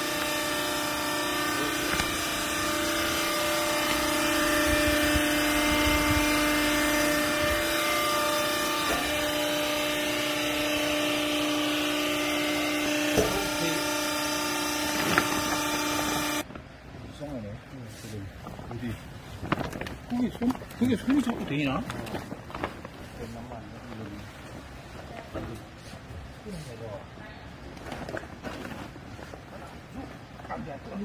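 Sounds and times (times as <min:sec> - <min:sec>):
hydraulic power unit humming: 0:00.0 - 0:17.0.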